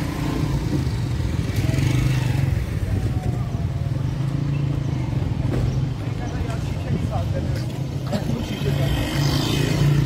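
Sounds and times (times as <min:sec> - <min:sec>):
road noise: 0:00.0 - 0:10.0.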